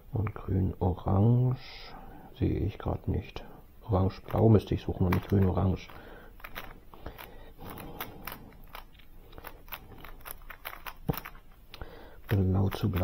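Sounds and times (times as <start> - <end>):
puzzle cube layers clicking: 4.2 - 13.0.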